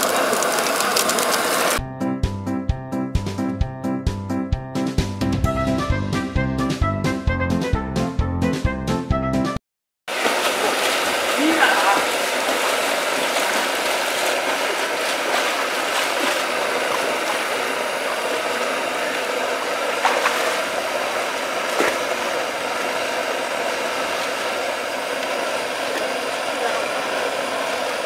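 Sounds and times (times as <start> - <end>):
water pouring and splashing: 0.0 - 1.8, 10.1 - 28.0
brief sharp splashes: 10.1 - 18.3, 20.0 - 20.7, 21.7 - 22.2.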